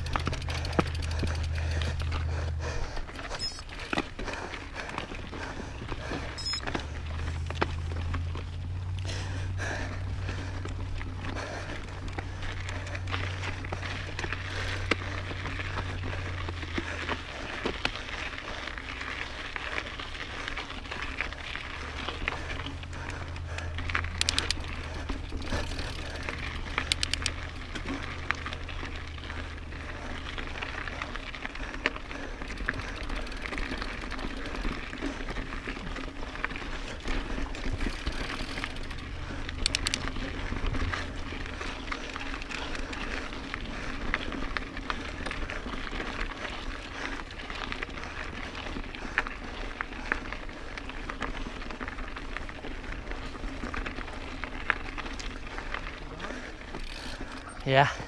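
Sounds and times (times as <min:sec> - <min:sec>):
rapid clicking: 0:00.0 - 0:02.3, 0:24.0 - 0:27.4, 0:39.6 - 0:40.2
bike tyre noise on dirt: 0:00.0 - 0:58.0
wind: 0:00.0 - 0:58.0.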